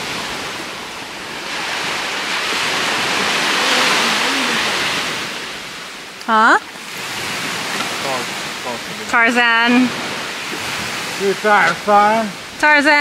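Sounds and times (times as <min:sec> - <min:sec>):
small waves breaking on shore: 0:00.0 - 0:13.0.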